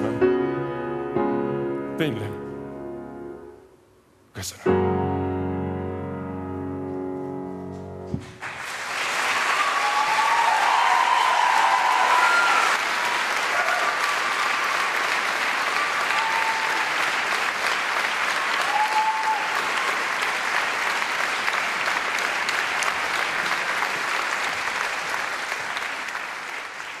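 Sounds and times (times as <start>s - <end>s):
audience applauding: 8.2s - 27.0s.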